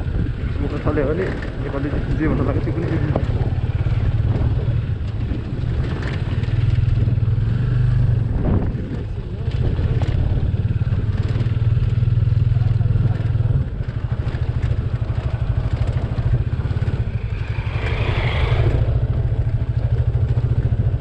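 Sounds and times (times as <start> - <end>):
motorcycle engine throbbing: 0.0 - 21.0.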